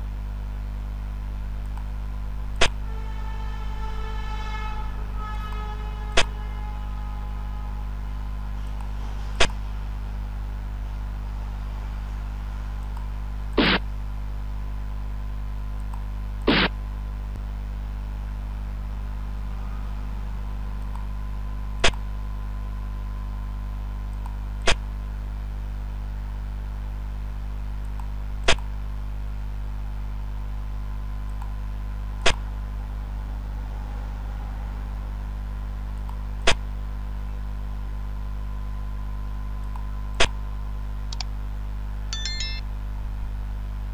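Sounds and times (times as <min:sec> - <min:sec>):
steady low hum: 0:00.0 - 0:43.9.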